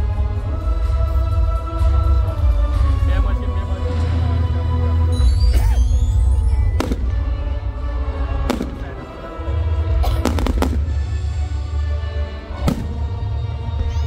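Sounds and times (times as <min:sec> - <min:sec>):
loud bass-heavy music: 0:00.0 - 0:14.0
fireworks bangs: 0:06.1 - 0:11.4, 0:12.6 - 0:13.4.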